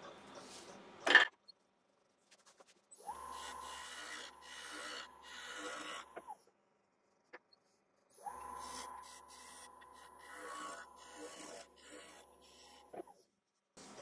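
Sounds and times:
wood lathe whining: 3.0 - 6.2, 8.2 - 12.9
gouge cutting wood: 3.3 - 6.2, 8.5 - 13.0.

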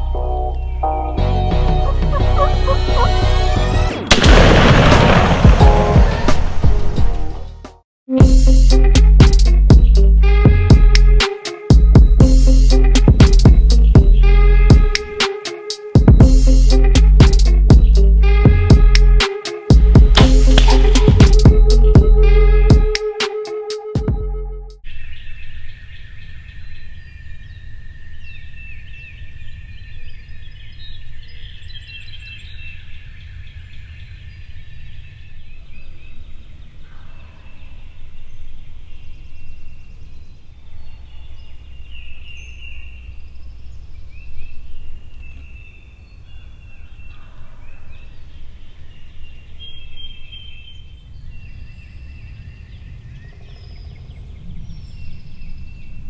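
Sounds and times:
songbirds chorus: 0.0 - 3.5, 24.8 - 56.0
turkeys gobbling: 1.4 - 3.9.

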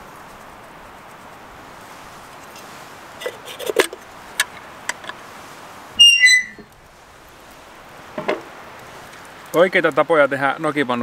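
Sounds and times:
camp stove hiss: 0.0 - 11.0
metal coffee pot clinking: 3.2 - 5.2
loud squeak stepping down: 6.0 - 6.7.

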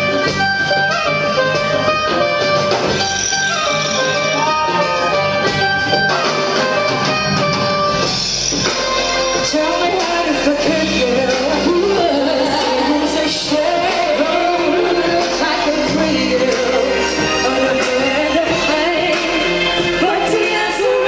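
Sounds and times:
live band playing over pa: 0.0 - 21.0
lead voice singing: 9.3 - 21.0.

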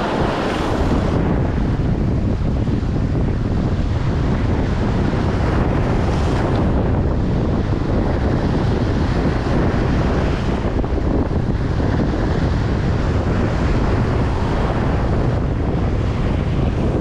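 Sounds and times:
surf washing: 0.0 - 17.0
wind buffeting microphone: 0.0 - 17.0.

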